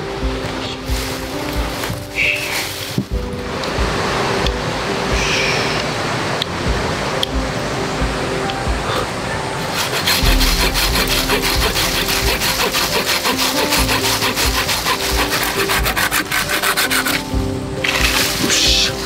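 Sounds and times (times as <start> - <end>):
hand saw cutting branch: 9.7 - 19.0.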